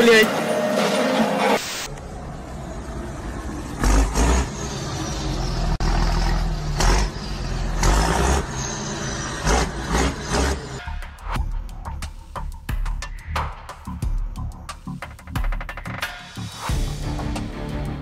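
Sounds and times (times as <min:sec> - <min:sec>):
road and engine noise: 0:00.0 - 0:13.9.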